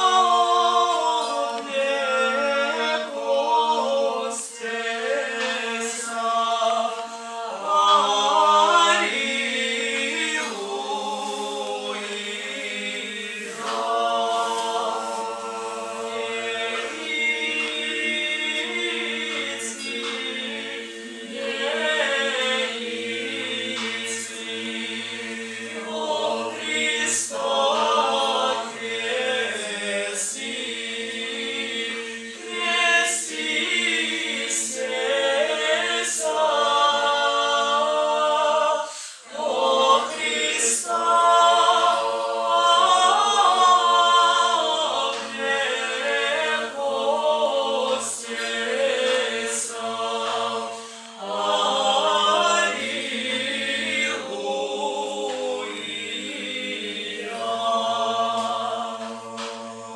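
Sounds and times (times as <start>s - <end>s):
mixed choir singing a cappella: 0.0s - 59.9s.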